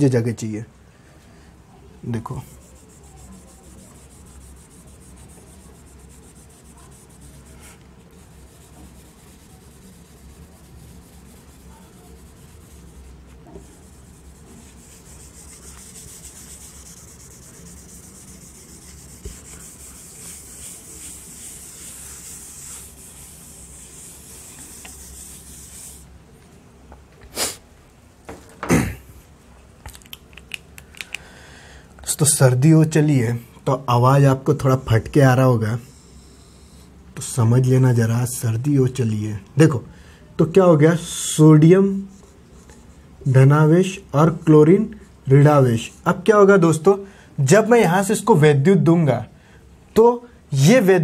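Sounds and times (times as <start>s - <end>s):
whiteboard duster scrubbing: 2.4s - 26.2s.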